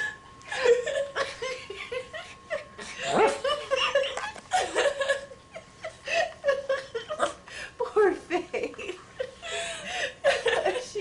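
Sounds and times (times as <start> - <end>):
people laughing: 3.4 - 7.4, 8.3 - 11.0.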